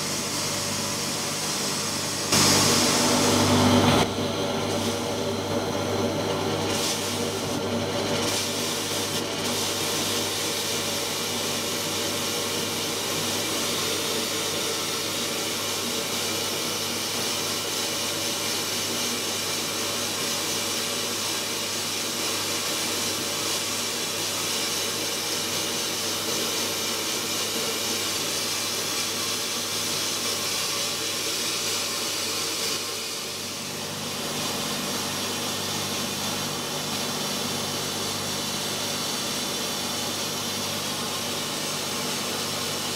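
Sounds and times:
sandblaster nozzle hissing: 0:00.0 - 0:05.3, 0:06.6 - 0:20.8.

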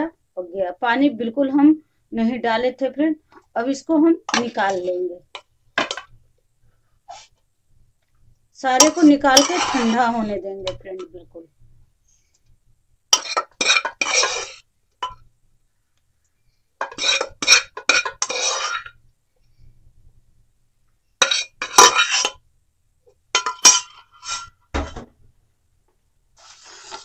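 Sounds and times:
spoon scraping pressure cooker: 0:08.8 - 0:11.1, 0:13.1 - 0:15.2, 0:16.8 - 0:19.0, 0:21.2 - 0:22.4, 0:23.4 - 0:24.6, 0:26.4 - 0:27.0.

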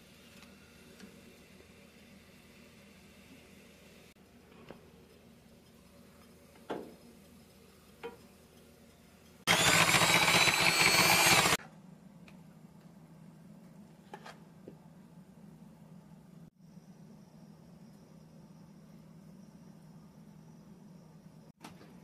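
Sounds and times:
electric hand mixer whipping: 0:09.5 - 0:11.6.

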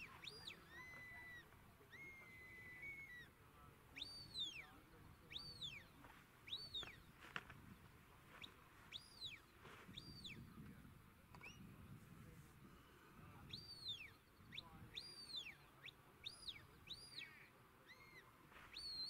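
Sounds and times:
shepherd's whistle: 0:18.7 - 0:19.0.

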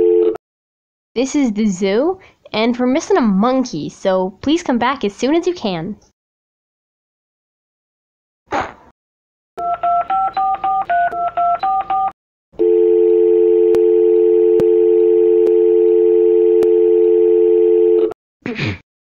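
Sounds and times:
steady dial tone: 0:00.0 - 0:00.4, 0:12.0 - 0:18.2.

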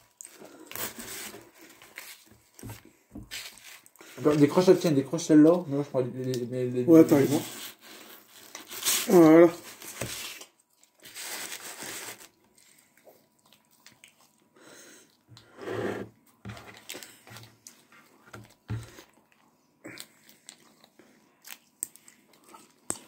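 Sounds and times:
plastic sachet crinkling: 0:08.2 - 0:12.8
chewing: 0:12.5 - 0:15.3, 0:16.9 - 0:23.0.

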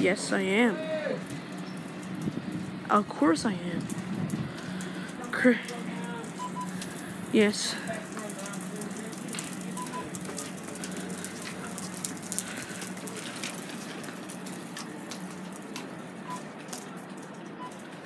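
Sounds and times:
crackling hiss: 0:00.0 - 0:18.0
low steady hum: 0:00.0 - 0:18.0
faint beeps: 0:06.4 - 0:06.8, 0:09.7 - 0:10.2.

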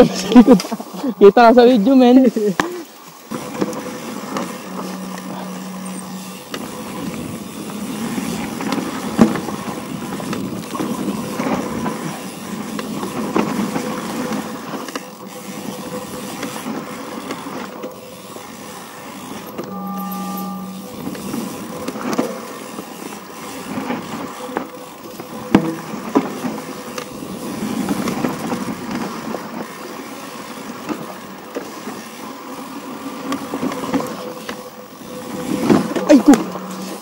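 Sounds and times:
faint steady whine: 0:00.0 - 0:10.1, 0:19.5 - 0:22.5, 0:33.9 - 0:37.0
wind: 0:00.0 - 0:37.0.

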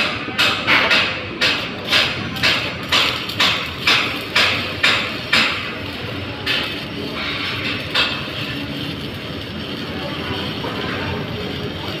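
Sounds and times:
hammer striking metal: 0:00.0 - 0:08.5.

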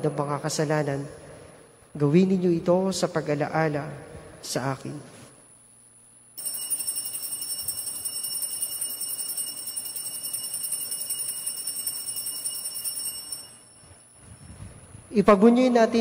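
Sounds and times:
altar bells jingling: 0:06.4 - 0:14.6.

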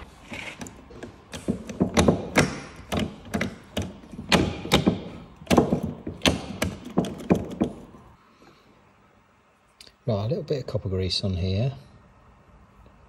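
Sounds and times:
gearbox selector clunking: 0:00.6 - 0:08.0.

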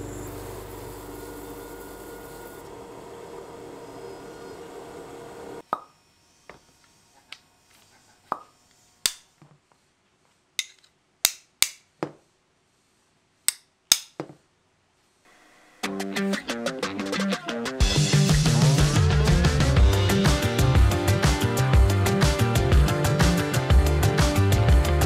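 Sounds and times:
sharp taps and clicks: 0:13.5 - 0:14.3
music: 0:15.7 - 0:25.0.

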